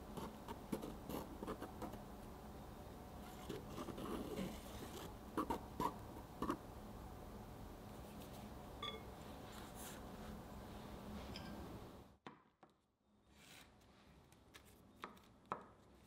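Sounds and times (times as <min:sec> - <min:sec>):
faint tone: 0:08.8 - 0:09.2, 0:11.3 - 0:11.7.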